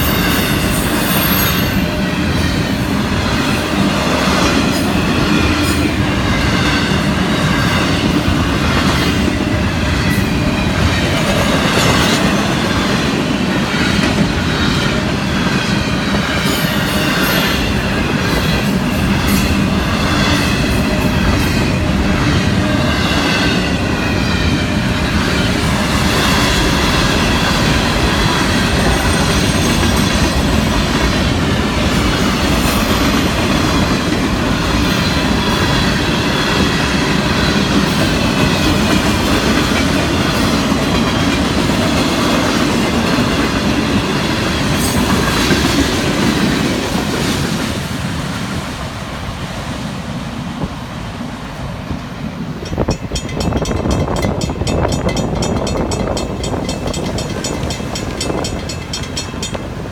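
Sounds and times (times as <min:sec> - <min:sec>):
train wheels rumbling and clacking: 0:00.0 - 0:59.9.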